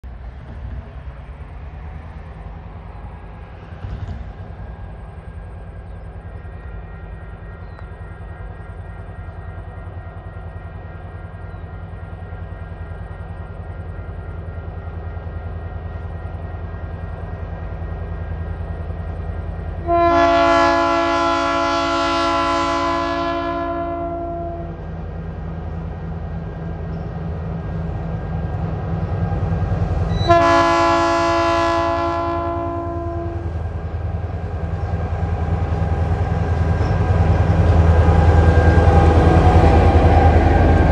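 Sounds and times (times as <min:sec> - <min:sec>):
locomotive engine rumble: 0:00.0 - 0:40.9
locomotive horn blasts: 0:19.8 - 0:24.8, 0:30.1 - 0:33.6.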